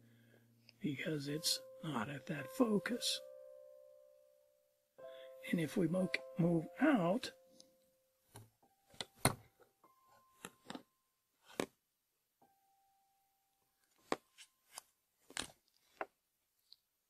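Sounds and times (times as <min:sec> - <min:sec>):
marker pens picked up: 0:10.3 - 0:11.8.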